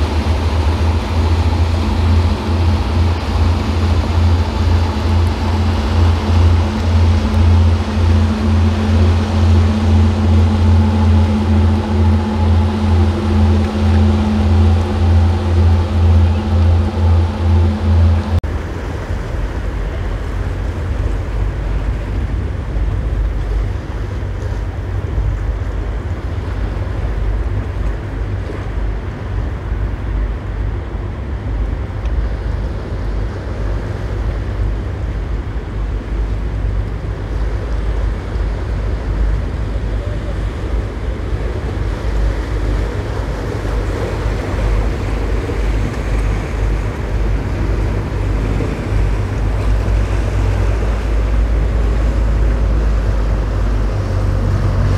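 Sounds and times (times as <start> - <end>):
boat engines droning: 0.0 - 54.9
water washing: 0.0 - 54.9
wind on microphone: 0.0 - 54.9.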